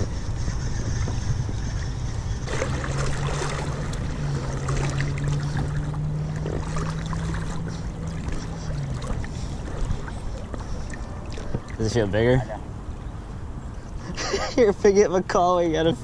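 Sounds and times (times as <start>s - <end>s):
river water sloshing: 0.0s - 14.2s
low steady hum: 0.0s - 16.0s.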